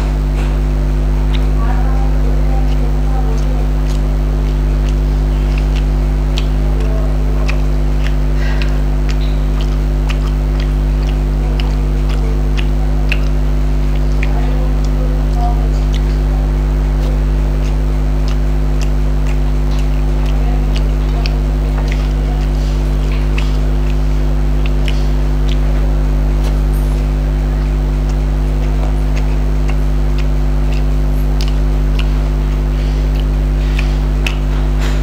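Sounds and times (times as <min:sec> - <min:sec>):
chewing: 0:00.0 - 0:35.0
fingers working rice on a plate: 0:00.0 - 0:35.0
loud steady low hum: 0:00.0 - 0:35.0.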